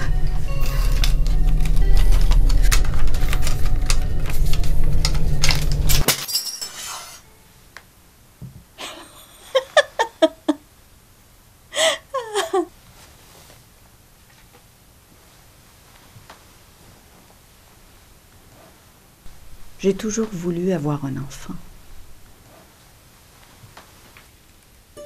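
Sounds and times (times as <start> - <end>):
woman sobbing: 0.0 - 1.3, 8.8 - 10.6, 11.7 - 12.8
deep hum: 0.0 - 6.0, 19.3 - 22.4.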